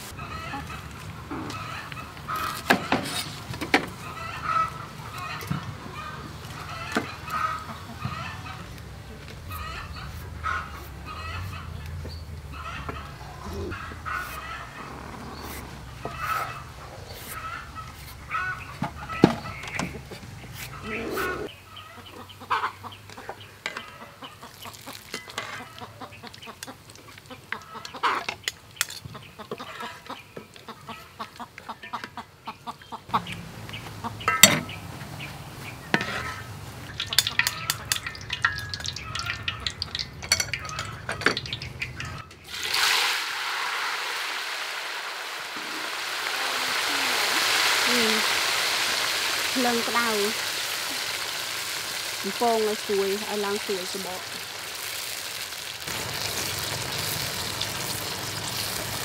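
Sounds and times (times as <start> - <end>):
chickens clucking: 0.0 - 42.5
deep-frying sizzle: 33.2 - 59.0.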